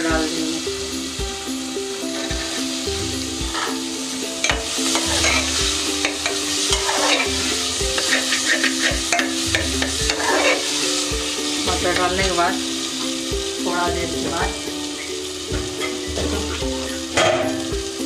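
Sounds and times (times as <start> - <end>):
peas sizzling in pot: 0.0 - 18.0
spatula scraping pot: 4.4 - 10.9.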